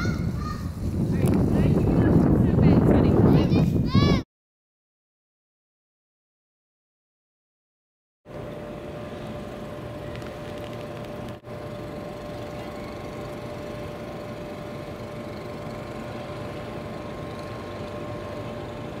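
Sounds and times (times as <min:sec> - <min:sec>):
steady mechanical hum: 0:00.0 - 0:04.2, 0:08.3 - 0:19.0.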